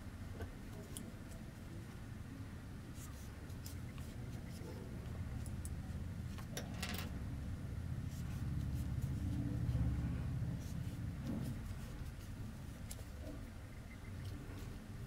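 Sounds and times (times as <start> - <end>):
steady low rumble: 7.1 - 15.0
crochet hook rustling yarn: 10.6 - 13.4.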